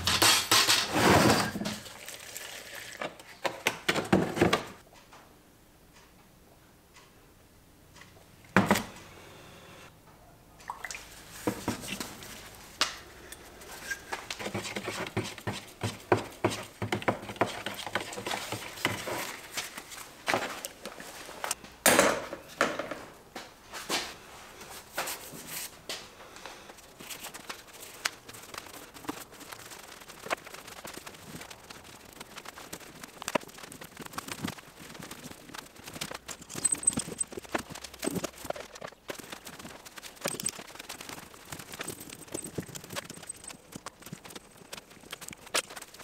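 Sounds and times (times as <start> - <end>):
liquid pouring and stirring: 1.6 - 3.4, 13.3 - 19.4.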